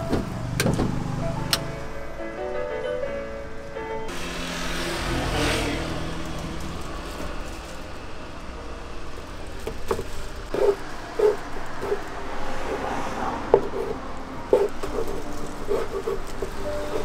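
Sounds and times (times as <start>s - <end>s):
car passing: 0.0s - 17.0s.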